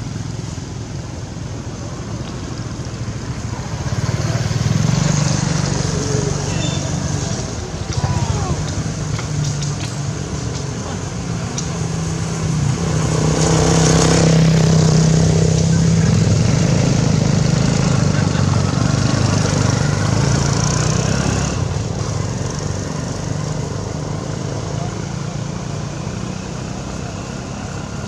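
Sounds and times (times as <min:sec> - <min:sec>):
vehicle engine running: 0:00.0 - 0:28.0.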